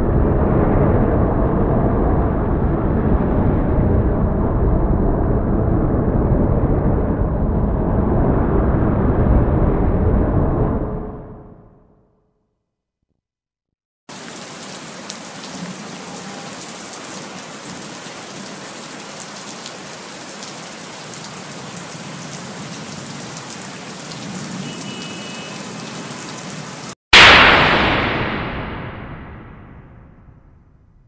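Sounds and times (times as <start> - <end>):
steady rain falling: 14.1 - 27.0.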